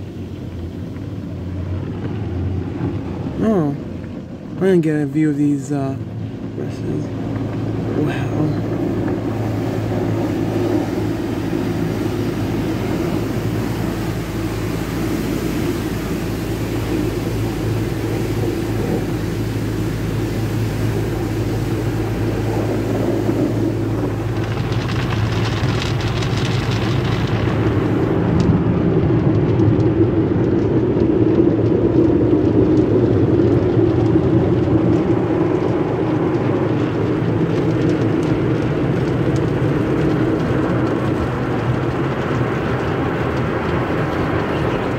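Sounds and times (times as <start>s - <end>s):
car wash water spray and brushes: 0.0s - 44.9s
loud hiss: 8.0s - 28.0s.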